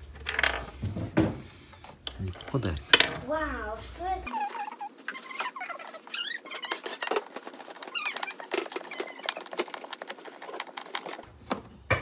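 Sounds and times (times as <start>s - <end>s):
furniture parts clicking and clattering: 0.0s - 3.4s, 5.2s - 12.0s
high squeaky chirps: 4.3s - 10.4s.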